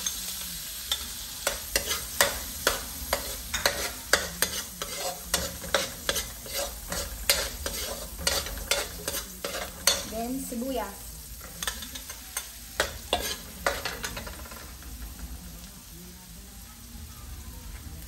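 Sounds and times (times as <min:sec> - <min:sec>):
metal spoon scraping a pan: 0:00.0 - 0:15.2
garlic sizzling in a wok: 0:00.0 - 0:18.0.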